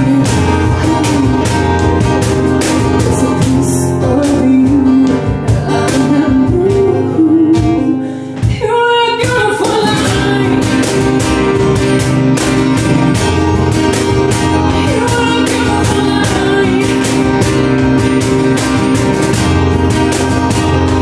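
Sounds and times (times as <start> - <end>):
woman singing: 0.0 - 19.4
cajon beat: 0.0 - 21.0
strummed acoustic guitar: 0.0 - 21.0
digital piano: 9.4 - 21.0.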